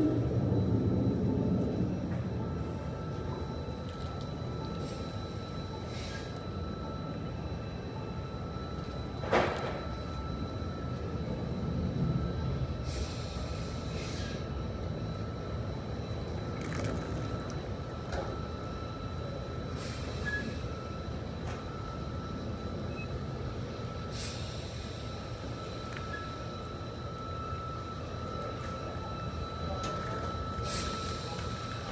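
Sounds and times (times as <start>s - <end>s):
air brake hisses: 5.9s - 6.4s, 12.8s - 14.5s, 19.8s - 20.6s, 24.1s - 25.2s, 30.6s - 31.3s.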